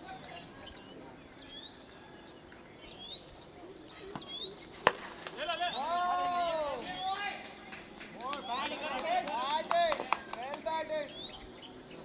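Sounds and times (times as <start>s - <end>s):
insect chirps: 0.0s - 12.0s
insect trilling: 0.0s - 12.0s
cricket bat striking ball: 4.2s - 5.5s.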